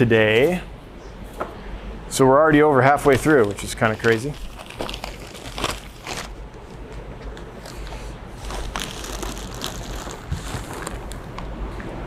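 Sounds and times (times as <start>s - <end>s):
steady low hum: 0.0s - 12.0s
packaging rustling and crackling: 3.1s - 11.5s.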